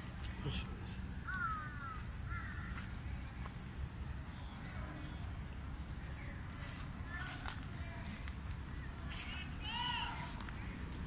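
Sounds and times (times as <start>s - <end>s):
crow cawing: 1.2s - 2.9s.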